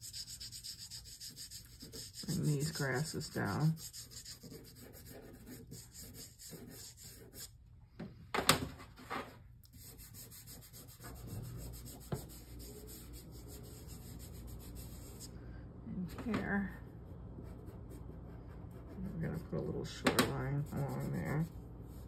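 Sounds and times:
pastel scratching on paper: 0.0s - 7.5s, 9.7s - 15.3s, 20.3s - 22.0s.

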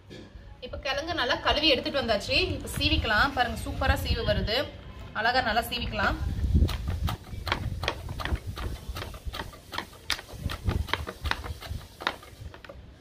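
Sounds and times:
mandoline slicer scraping slices: 6.6s - 12.7s.

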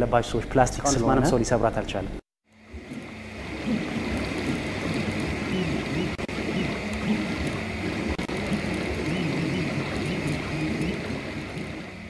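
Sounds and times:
stepper motors whining: 2.6s - 12.0s.

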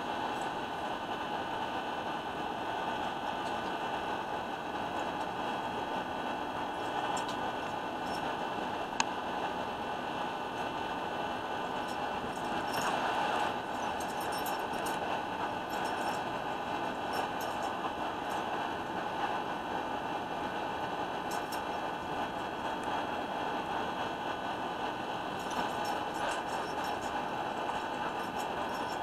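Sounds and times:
faint hum tones: 0.0s - 29.0s.

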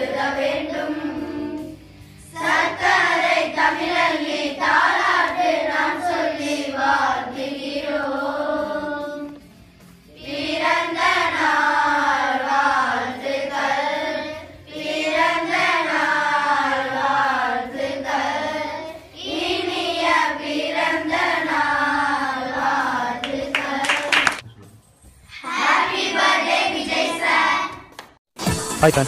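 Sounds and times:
children singing in unison: 0.0s - 9.5s, 10.1s - 24.3s, 25.4s - 27.8s.

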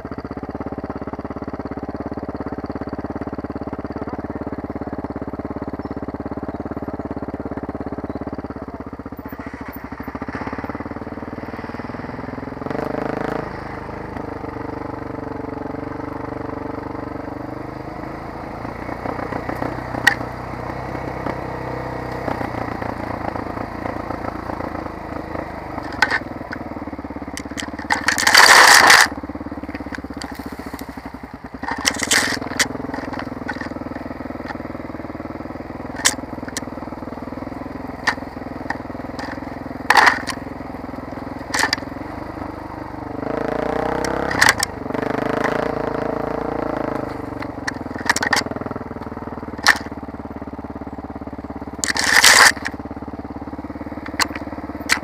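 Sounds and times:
motorcycle engine running: 0.0s - 55.0s
branches scraping against bike: 25.7s - 34.7s, 35.9s - 36.7s, 38.0s - 40.4s, 41.4s - 42.0s, 51.8s - 52.8s.

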